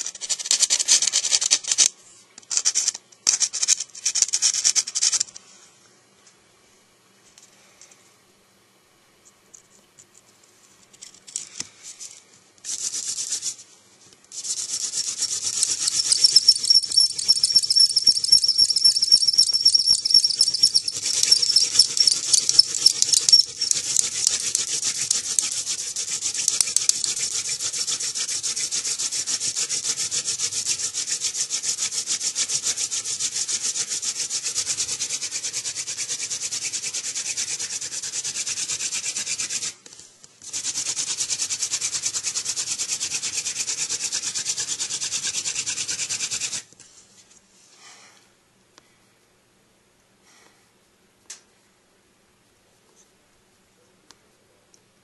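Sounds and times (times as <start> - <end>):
hand drill friction rubbing: 14.3 - 30.4
thin high squeal: 14.4 - 28.8.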